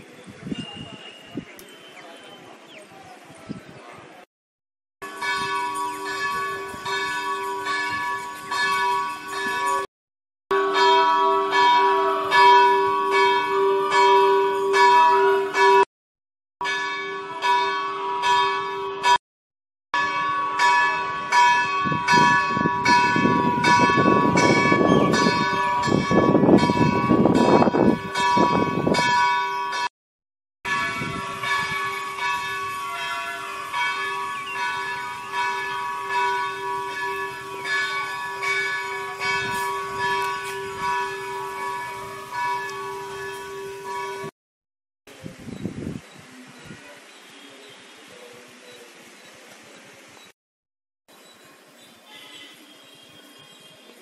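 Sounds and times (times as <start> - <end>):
bells ringing: 5.0 - 9.9, 10.5 - 15.9, 16.6 - 19.2, 20.0 - 29.9, 30.7 - 44.4.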